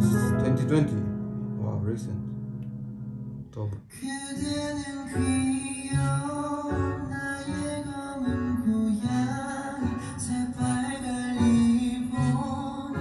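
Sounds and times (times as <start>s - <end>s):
pop song with guitar and bass: 0.0s - 13.0s.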